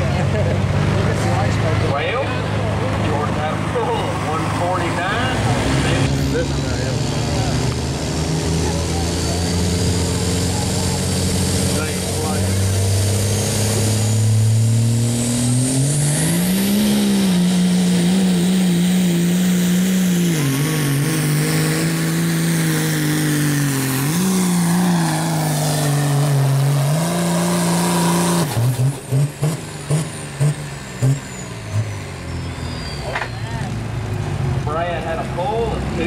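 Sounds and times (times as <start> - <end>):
diesel engine revving: 0.0 - 36.0
turbo whistle: 31.0 - 33.6.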